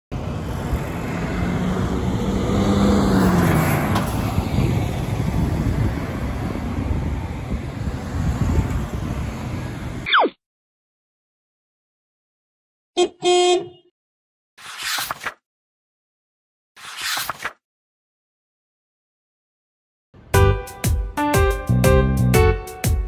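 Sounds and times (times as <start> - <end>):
cars and truck passing: 0.1 - 10.1.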